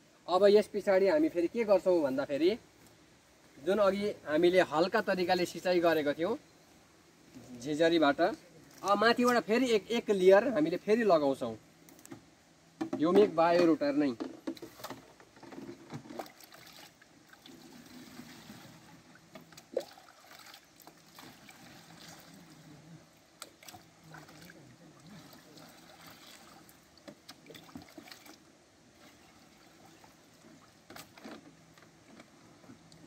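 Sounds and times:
plastic knocks: 12.8s - 14.6s
water trickling in a bucket: 14.5s - 32.0s.

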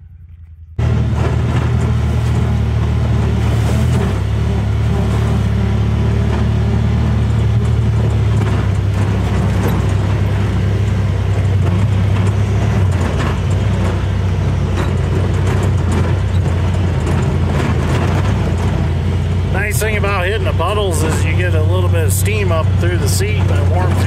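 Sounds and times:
vehicle engine running: 0.0s - 24.0s
clicks and rattles: 7.3s - 19.6s.

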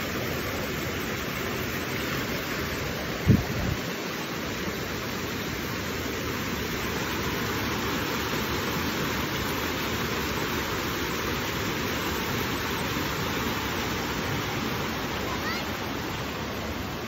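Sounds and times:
stream rushing over boulders: 0.0s - 17.0s.

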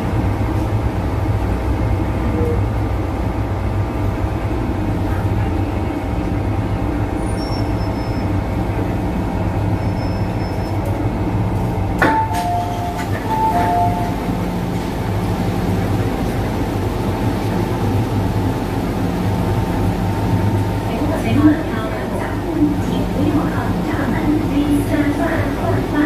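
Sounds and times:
electric train rumbling to a stop: 0.0s - 26.0s
train doors opening clunk: 11.9s - 16.7s
two-tone door chime: 12.1s - 14.2s.

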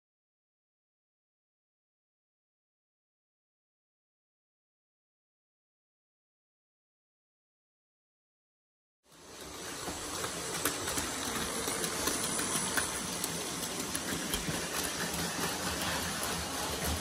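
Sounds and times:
toy train motors whirring: 9.1s - 17.0s
wheels clicking on plastic track: 9.1s - 17.0s.

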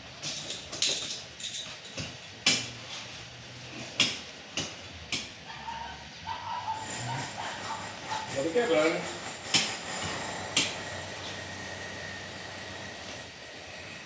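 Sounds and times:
harness hardware clinking: 0.2s - 2.0s.

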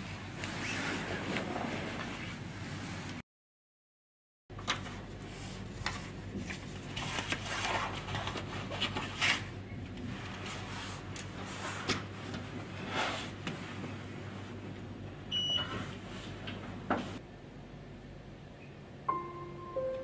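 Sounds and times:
low steady hum: 17.2s - 20.0s.

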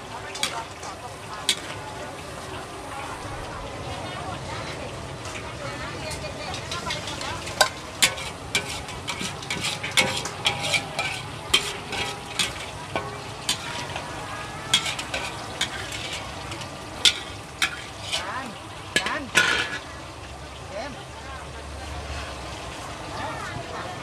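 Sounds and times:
metal ladle scraping wok: 0.0s - 3.3s, 4.6s - 20.0s
food sizzling in hot oil: 0.0s - 24.0s.

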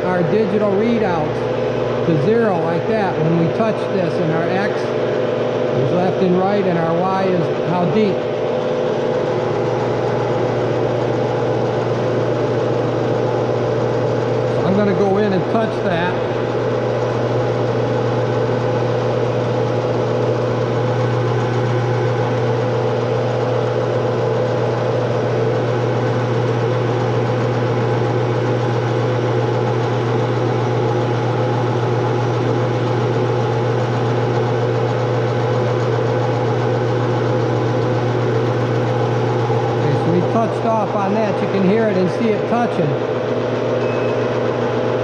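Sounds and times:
metal lathe humming: 0.0s - 45.0s.

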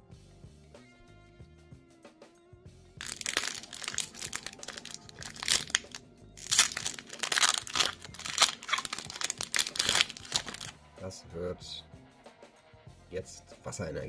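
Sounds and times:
foil wrapper crinkling: 3.0s - 10.7s.

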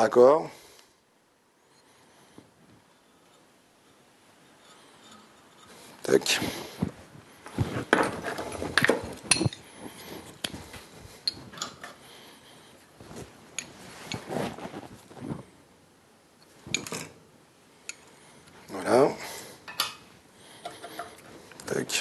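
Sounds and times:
handling and rubbing noises: 1.8s - 15.6s
copper fittings clinking: 3.1s - 5.8s.

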